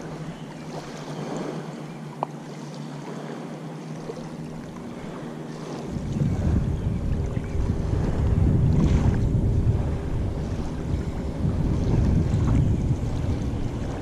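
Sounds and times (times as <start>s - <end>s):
distant motorboat engine droning: 0.0s - 14.0s
water lapping at bank: 0.0s - 14.0s
wind buffeting microphone: 4.4s - 14.0s.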